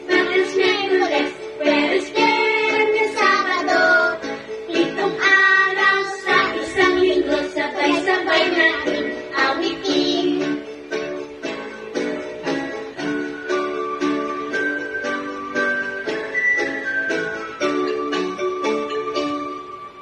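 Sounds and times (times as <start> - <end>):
child singing: 0.1 - 10.6.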